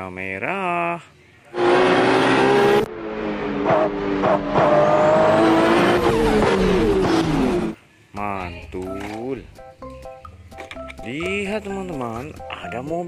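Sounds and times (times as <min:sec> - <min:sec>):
sports car engines revving: 0:01.5 - 0:07.8.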